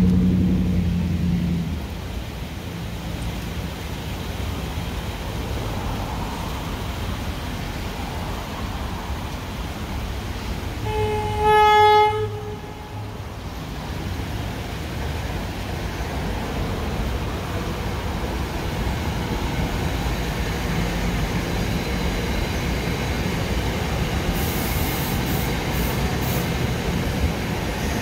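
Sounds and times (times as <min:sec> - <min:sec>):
train rumble: 0:00.0 - 0:28.0
train horn blast: 0:10.8 - 0:13.2.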